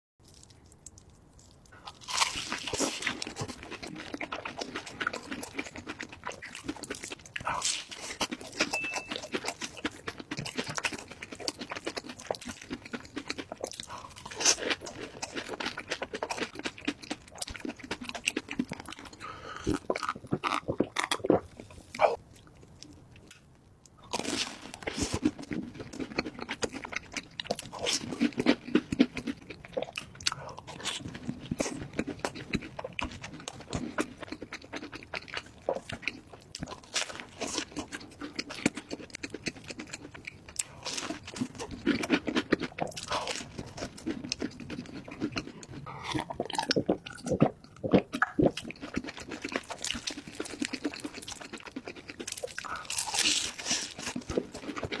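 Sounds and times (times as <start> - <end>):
man chewing crunchy food: 0.2 - 55.0
mouth clicks and smacks: 38.4 - 55.0.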